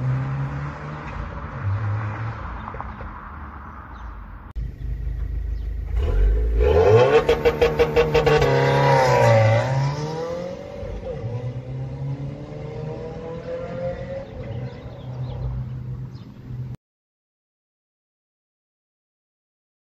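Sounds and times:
car driving off: 0:00.0 - 0:03.8, 0:04.6 - 0:16.7
car engine revving: 0:04.6 - 0:16.2.

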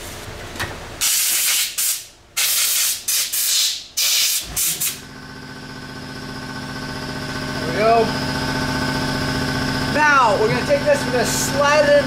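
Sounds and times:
air compressor motor hum: 0:00.0 - 0:12.0
air spray gun hissing blasts: 0:01.0 - 0:05.0.

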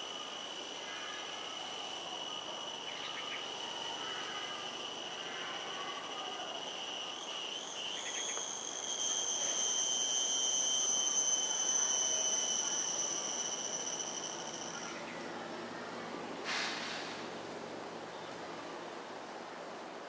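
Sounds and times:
insect high-pitched whine: 0:00.0 - 0:15.9.

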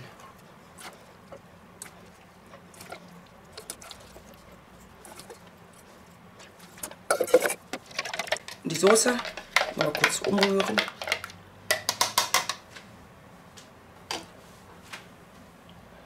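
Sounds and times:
dish clatter: 0:07.1 - 0:12.6
potato slices tapping into dish: 0:08.2 - 0:12.6.

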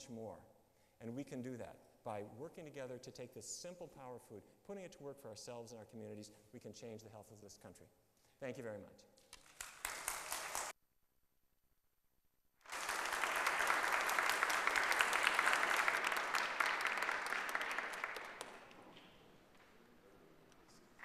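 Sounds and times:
audience applauding: 0:09.3 - 0:10.7, 0:12.6 - 0:20.0.

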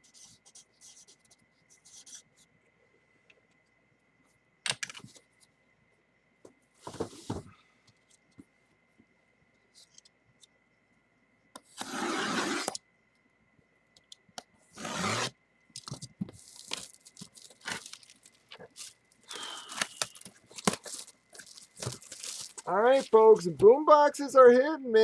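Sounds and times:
cardboard scrapes and crinkles: 0:11.8 - 0:12.8, 0:14.8 - 0:15.3
cardboard box tearing: 0:14.8 - 0:15.3, 0:19.6 - 0:22.7.

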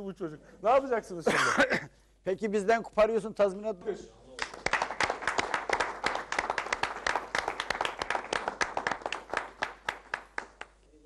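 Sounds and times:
audience applauding: 0:04.4 - 0:10.8.

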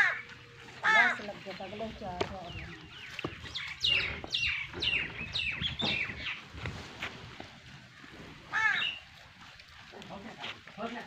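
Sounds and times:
bird chirping: 0:01.6 - 0:06.7.

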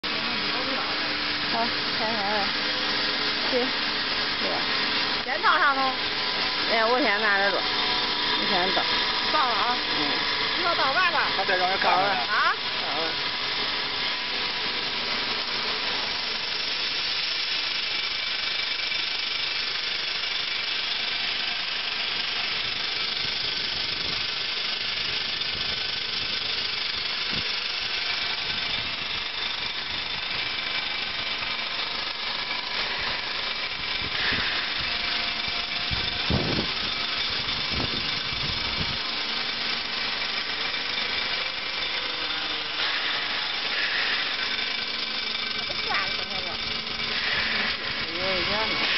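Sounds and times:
vibrator motor buzzing: 0:00.0 - 0:48.9.

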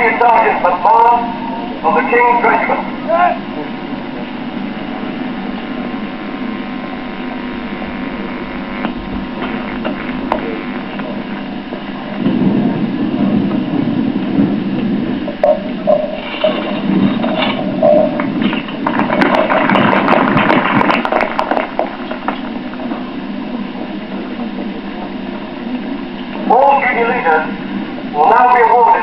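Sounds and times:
electrical hum and hiss: 0:00.0 - 0:29.0.

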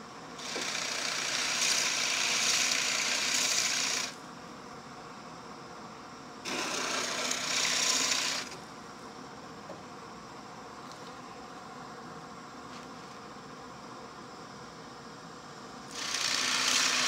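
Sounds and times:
drill press rasping into plywood: 0:06.5 - 0:08.6, 0:15.9 - 0:17.0.

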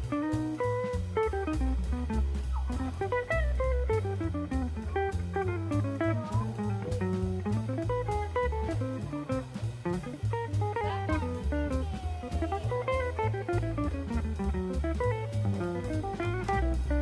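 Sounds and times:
bass line: 0:00.0 - 0:17.0
drum kit beat: 0:00.0 - 0:17.0
plucked guitar melody: 0:00.0 - 0:17.0.

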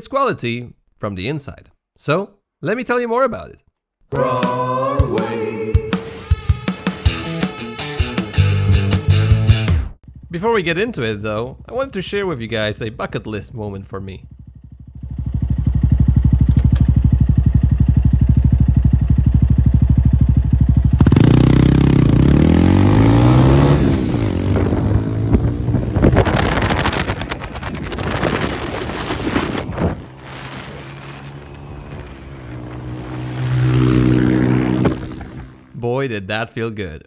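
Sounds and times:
wind noise on microphone: 0:23.2 - 0:35.7
gliding motor tones: 0:26.1 - 0:35.6
electric motor hum: 0:27.8 - 0:35.6.

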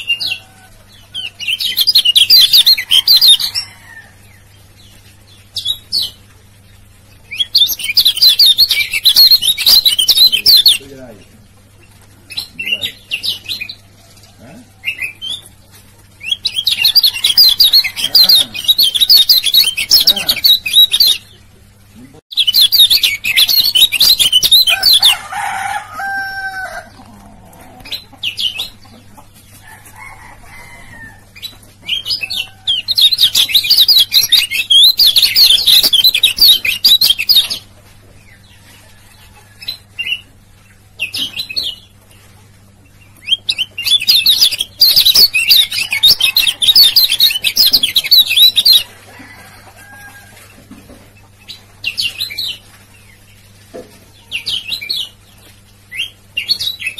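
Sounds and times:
bird high-pitched chattering song: 0:01.2 - 0:03.6, 0:07.3 - 0:11.0, 0:16.2 - 0:21.4, 0:22.3 - 0:25.2, 0:31.4 - 0:37.7, 0:43.1 - 0:48.9.

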